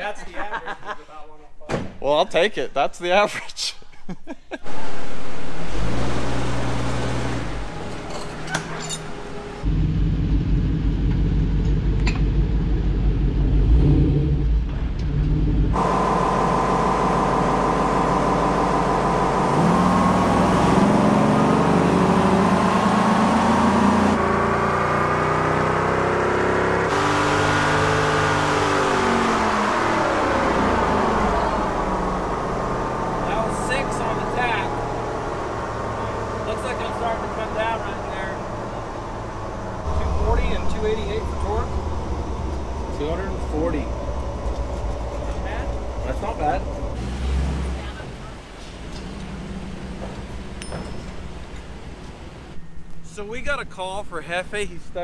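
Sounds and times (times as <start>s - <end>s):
car engine accelerating hard: 4.6s - 50.6s
car engine rumbling on rollers: 4.6s - 55.0s.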